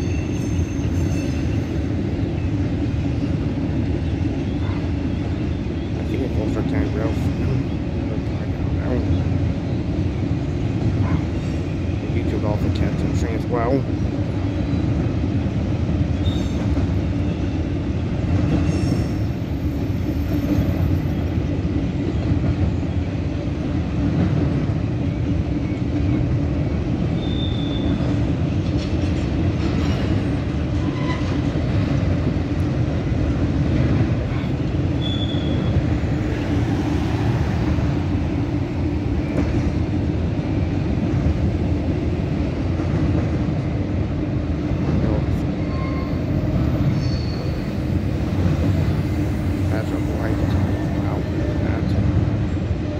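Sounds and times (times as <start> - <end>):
high wheel squeals: 0.0 - 1.9, 16.2 - 17.6, 18.5 - 21.4, 27.1 - 28.1, 34.9 - 36.0, 45.5 - 48.1
freight train wheels rumbling: 0.0 - 52.9.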